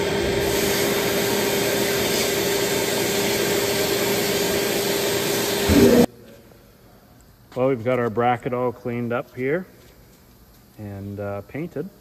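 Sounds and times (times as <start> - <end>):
steady hum: 0.0 - 12.0
compressed air blasting hiss: 0.4 - 6.1.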